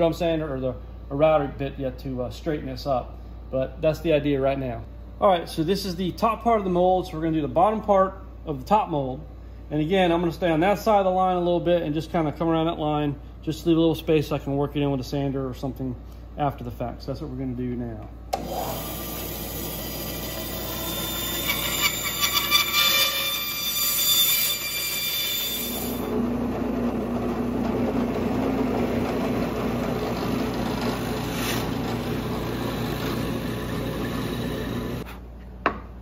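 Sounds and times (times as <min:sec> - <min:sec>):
bandsaw cutting wood: 0:18.4 - 0:26.1, 0:29.2 - 0:35.1
drill press humming: 0:26.0 - 0:35.1.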